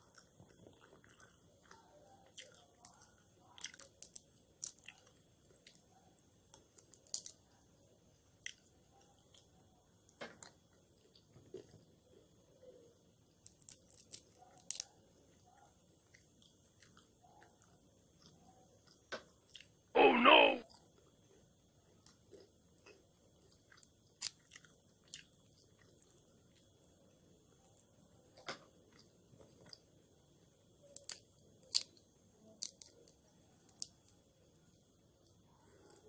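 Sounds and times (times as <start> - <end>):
chewing: 0.0 - 5.9, 8.4 - 9.6, 10.4 - 11.9, 13.4 - 19.8, 22.0 - 26.8, 28.9 - 29.8
peanut shells cracking: 2.8 - 5.1, 6.5 - 7.5, 13.4 - 15.0, 30.8 - 34.2.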